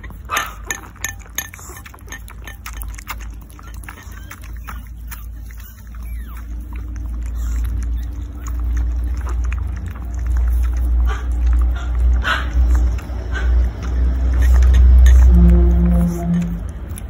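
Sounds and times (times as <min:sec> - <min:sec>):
dogs lapping milk: 0:00.0 - 0:17.0
steady low rumble: 0:05.8 - 0:17.0.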